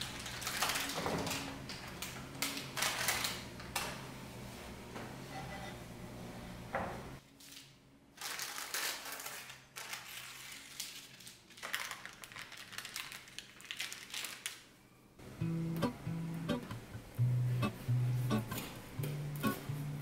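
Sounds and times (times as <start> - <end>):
baking paper crinkling: 0.0 - 3.5, 7.4 - 14.8
soft acoustic guitar music: 15.2 - 20.0.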